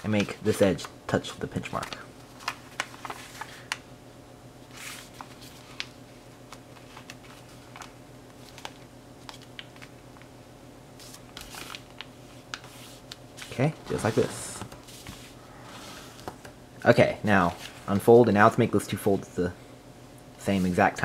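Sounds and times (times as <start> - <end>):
faint steady hum: 0.0 - 21.0
paper crinkling and rustling: 1.5 - 3.8, 4.7 - 10.0, 11.0 - 15.4.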